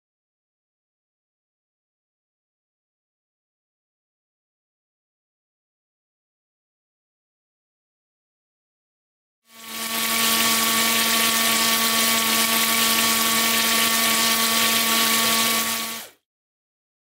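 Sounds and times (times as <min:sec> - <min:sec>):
washer pump motor hum: 0:09.5 - 0:16.2.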